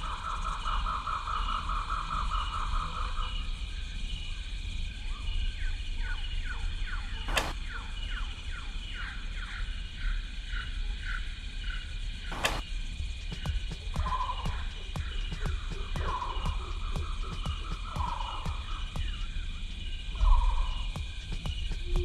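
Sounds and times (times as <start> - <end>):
forest ambience: 0.0 - 22.0
bowstring snapping: 7.3 - 7.6, 12.3 - 12.6.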